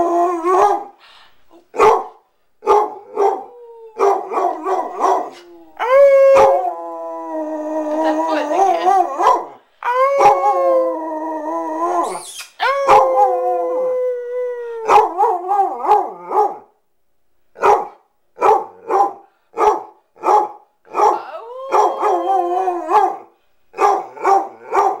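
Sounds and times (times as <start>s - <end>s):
dog barking howls: 2.7s - 6.8s, 12.6s - 13.4s, 17.6s - 25.0s
dog howling: 3.0s - 16.5s, 21.0s - 23.2s.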